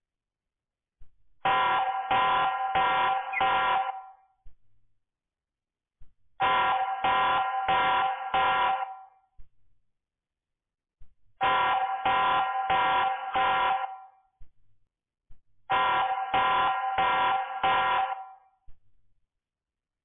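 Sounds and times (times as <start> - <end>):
electronic alarm beeps: 1.5 - 4.1.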